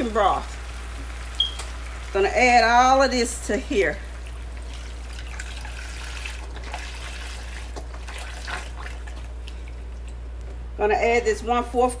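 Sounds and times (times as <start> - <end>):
liquid pouring into a pan: 4.2 - 9.3.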